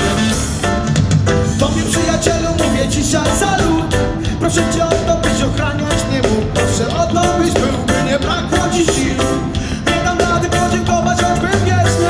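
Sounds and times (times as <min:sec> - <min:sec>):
live reggae band playing: 0:00.0 - 0:12.0.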